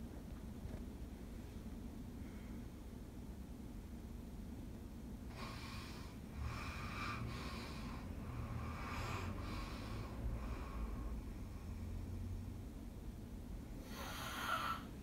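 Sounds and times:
faint low rumble: 0:00.0 - 0:15.0
person breathing: 0:02.2 - 0:02.8, 0:05.3 - 0:12.0, 0:13.8 - 0:15.0.

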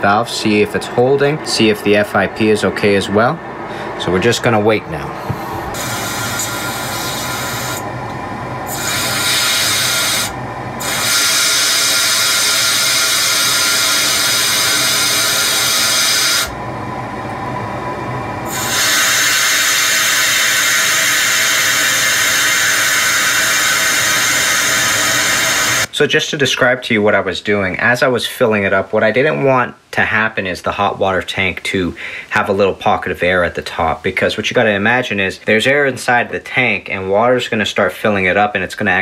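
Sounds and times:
air hissing from relief valve: 0:05.2 - 0:07.9, 0:08.6 - 0:16.6, 0:18.4 - 0:25.9.

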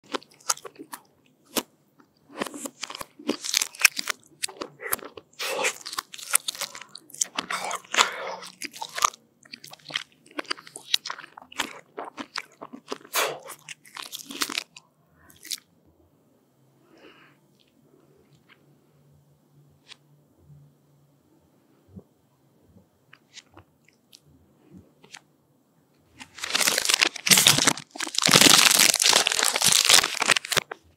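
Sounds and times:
chewing and wet mouth sounds: 0:00.0 - 0:15.7, 0:23.1 - 0:25.2
crunching chocolate shell: 0:02.4 - 0:14.8, 0:26.2 - 0:30.8
plastic wrapper crinkling: 0:26.2 - 0:30.9.

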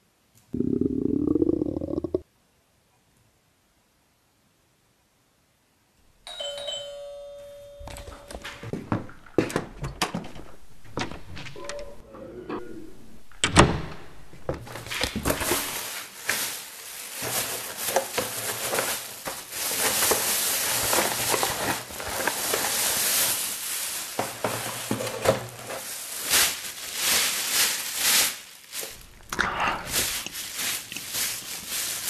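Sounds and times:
plastic bag crinkling: 0:14.2 - 0:32.0.

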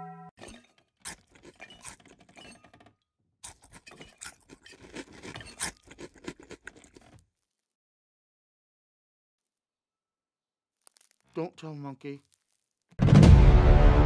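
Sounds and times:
faint crackles and rustles: 0:12.0 - 0:12.9.

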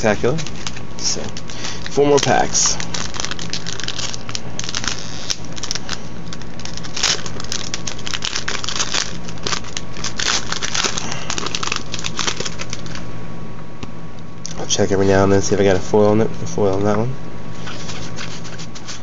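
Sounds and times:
foil wrapper crinkling: 0:00.0 - 0:13.0.

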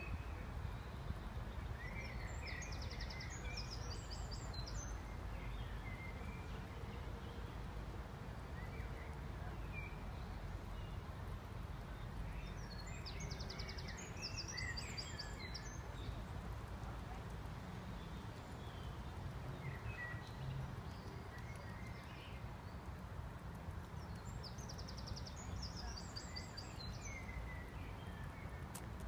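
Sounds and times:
songbird singing: 0:00.0 - 0:29.0.

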